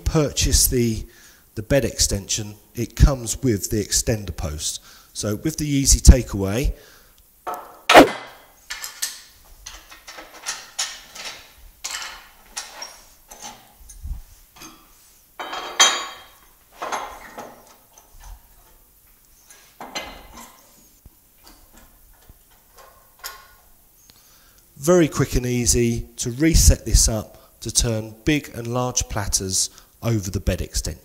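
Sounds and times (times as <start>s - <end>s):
metallic clanks and scrapes: 7.9s - 14.0s.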